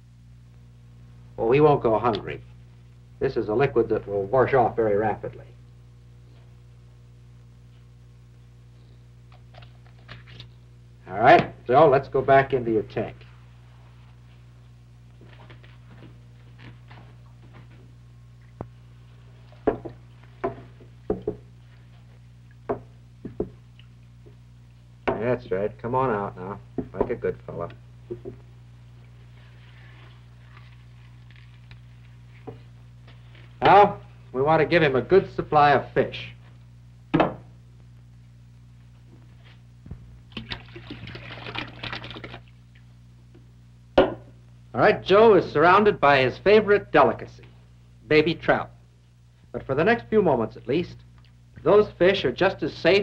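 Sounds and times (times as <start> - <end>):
steady low hum: 0.0 - 53.0
water splashes and knocks: 40.3 - 42.4.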